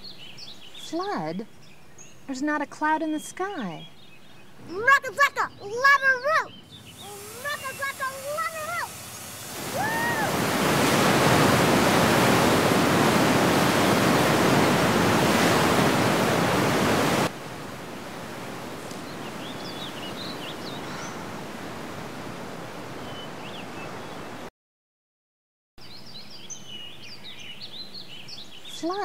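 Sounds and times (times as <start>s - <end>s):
bird chirps: 0.0s - 10.1s, 18.9s - 21.3s, 25.8s - 29.0s
steady outdoor hiss: 0.0s - 24.4s, 25.8s - 29.0s
flood water rushing: 6.8s - 23.0s.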